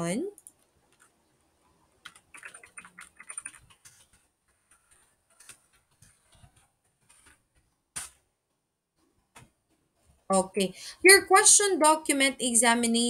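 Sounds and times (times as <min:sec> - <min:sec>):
faint keyboard typing: 0:00.4 - 0:10.3.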